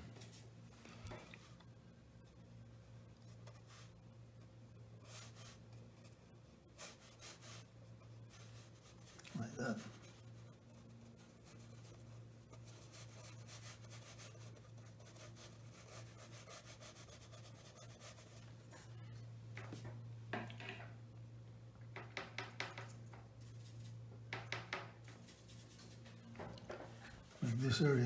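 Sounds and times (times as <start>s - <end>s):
brush taps and scrapes: 3.1s - 20.8s, 22.0s - 28.0s
brush scrubbing paint on paper: 3.2s - 4.1s, 5.0s - 18.9s, 23.4s - 24.0s, 25.1s - 26.2s, 27.2s - 28.0s.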